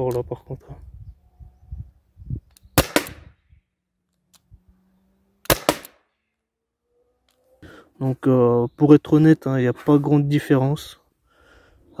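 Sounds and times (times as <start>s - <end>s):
air revolver shots: 2.8s - 3.3s, 5.5s - 6.0s.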